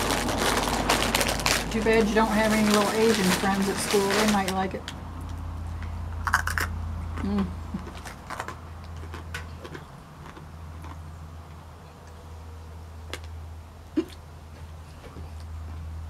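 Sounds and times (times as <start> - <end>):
plastic water bottle crackling: 0.0 - 5.0
person eating a snack: 6.2 - 11.0.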